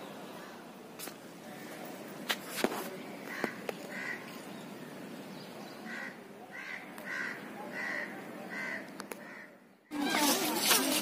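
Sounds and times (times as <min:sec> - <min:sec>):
crows cawing: 0:03.3 - 0:04.3, 0:05.9 - 0:09.6.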